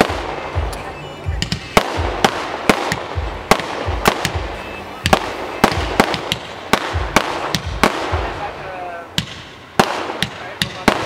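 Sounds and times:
firework cracks: 0.0 - 11.0
firework launch thumps: 1.4 - 8.5.

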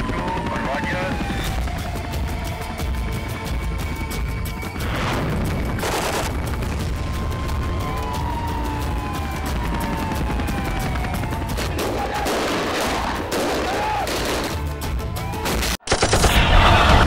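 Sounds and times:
rapid gunfire: 0.0 - 2.5, 4.8 - 6.8, 9.4 - 14.7, 15.6 - 17.0
dramatic background music: 0.0 - 17.0.

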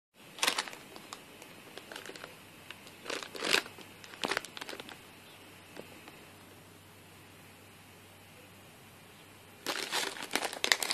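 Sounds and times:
plastic bag crinkling: 0.3 - 5.1, 9.6 - 10.9.

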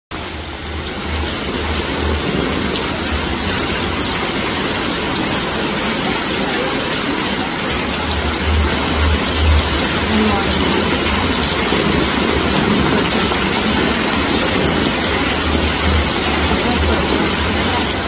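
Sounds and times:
heavy rain pouring: 0.1 - 18.0
low pulsing bass: 7.7 - 18.0.

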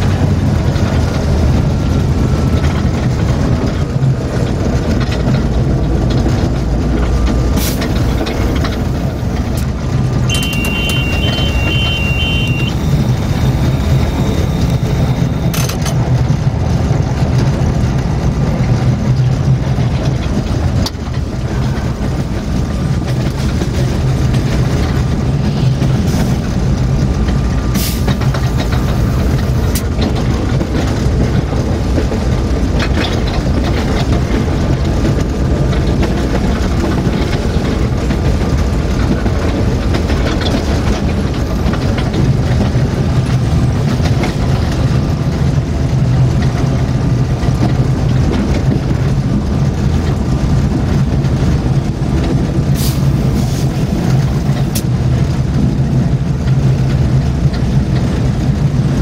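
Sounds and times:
locomotive diesel engine running: 0.0 - 59.0
high electronic beeps: 10.3 - 15.6.

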